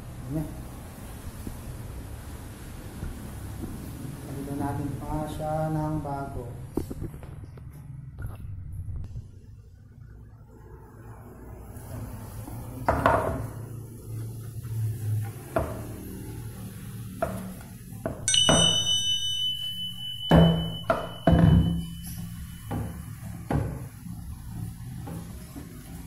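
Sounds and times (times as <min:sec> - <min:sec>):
high bell-like ding: 0:18.3 - 0:23.2
low steady hum: 0:18.3 - 0:23.5.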